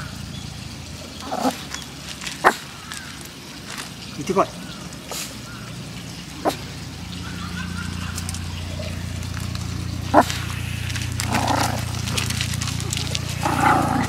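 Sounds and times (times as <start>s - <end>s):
small dog growling: 1.2s - 1.7s, 8.7s - 14.0s.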